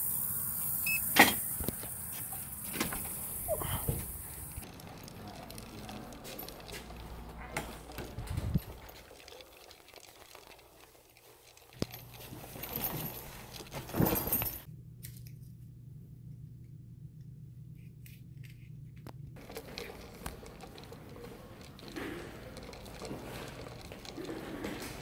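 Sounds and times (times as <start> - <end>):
low steady hum: 11.0 - 21.8.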